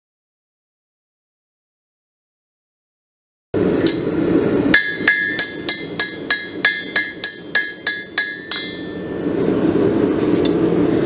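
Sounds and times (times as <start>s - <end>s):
hammer ringing on anvil: 3.8s - 9.3s.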